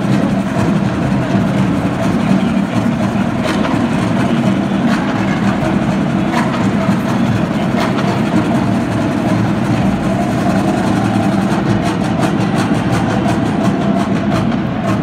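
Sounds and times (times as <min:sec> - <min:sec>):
stadium crowd hubbub: 0:00.0 - 0:15.0.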